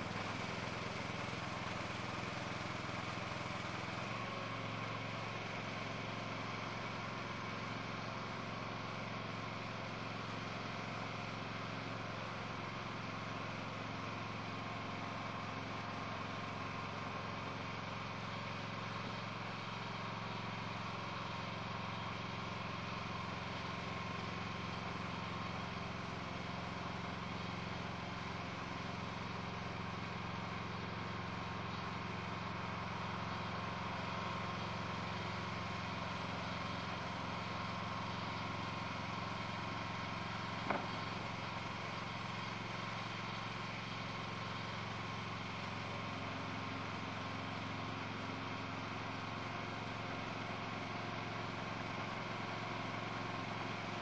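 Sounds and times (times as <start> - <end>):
engine running steadily: 0.0 - 54.0.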